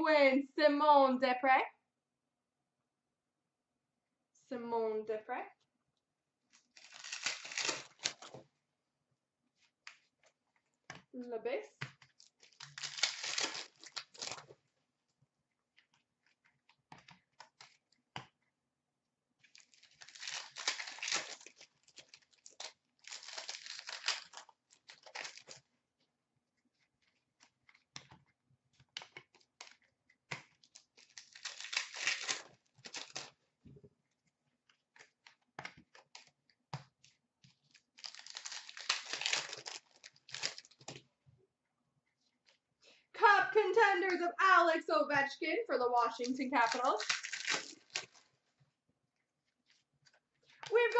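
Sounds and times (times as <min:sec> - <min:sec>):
wrapper tearing and crinkling: 0:06.5 - 0:08.4, 0:12.2 - 0:14.5, 0:19.4 - 0:25.6, 0:30.6 - 0:33.4, 0:37.6 - 0:41.0, 0:46.1 - 0:48.4.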